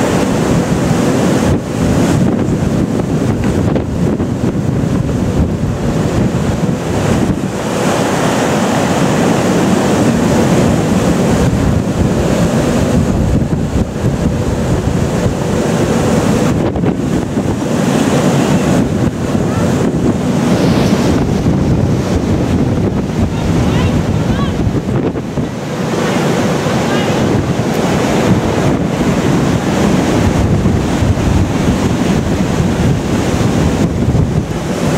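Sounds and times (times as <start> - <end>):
breaking sea and wake rushing: 0.0 - 34.9
wind buffeting microphone: 0.0 - 34.9.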